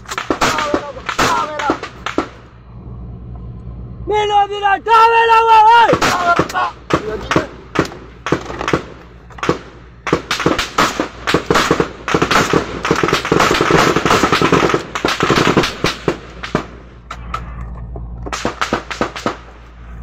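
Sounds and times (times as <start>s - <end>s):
rifle fire bursts: 0.0s - 2.6s, 5.8s - 17.3s, 18.3s - 19.9s.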